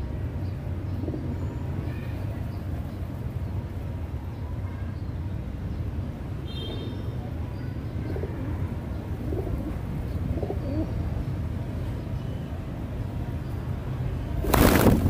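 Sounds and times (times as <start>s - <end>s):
pigeons cooing: 8.1s - 11.0s.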